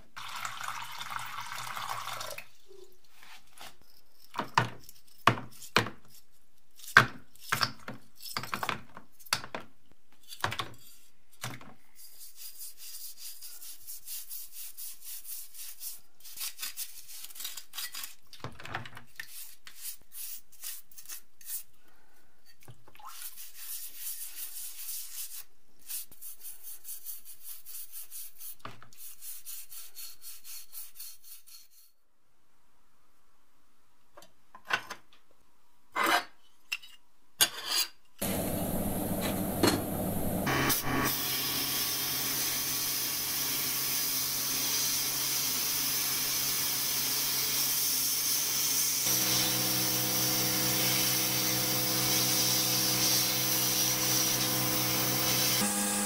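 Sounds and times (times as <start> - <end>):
water pouring into plastic tub: 0.2 - 2.5
toothbrush scrubbing metal: 3.6 - 8.5, 12.0 - 18.2, 19.2 - 21.7, 23.2 - 31.9, 50.2 - 55.6.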